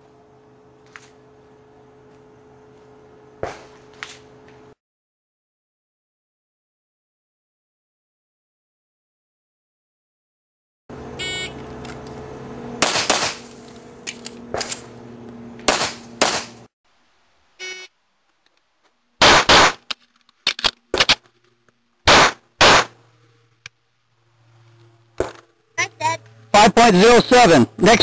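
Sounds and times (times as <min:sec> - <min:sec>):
steady hum: 0:00.0 - 0:04.8, 0:10.9 - 0:28.0
shot timer beep: 0:11.2 - 0:11.6, 0:17.6 - 0:17.9
pistol shots: 0:12.8 - 0:13.4, 0:15.7 - 0:16.5, 0:19.2 - 0:19.8, 0:22.1 - 0:23.0.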